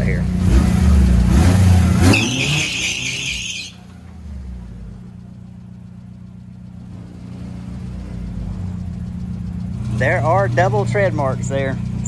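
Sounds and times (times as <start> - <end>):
car engine running at low revs: 0.0 - 12.0
tires squealing: 0.4 - 5.3.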